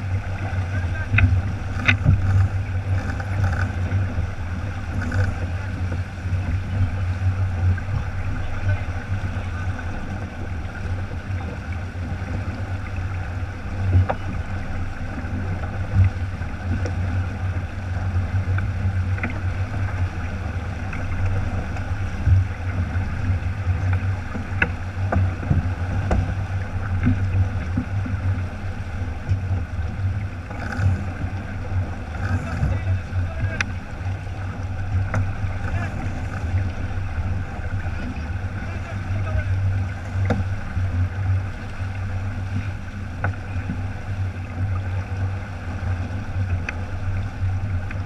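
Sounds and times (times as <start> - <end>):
water rushing along a hull: 0.0 - 48.0
wind buffeting the microphone: 0.0 - 48.0
faint clicks: 1.1 - 4.1, 33.4 - 34.2, 46.6 - 46.8.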